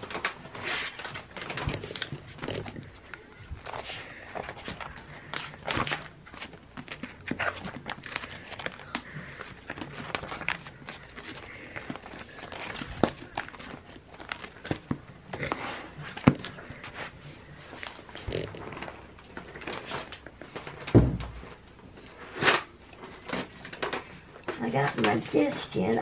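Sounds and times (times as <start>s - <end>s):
plastic sleeves rustling: 0.0s - 26.0s.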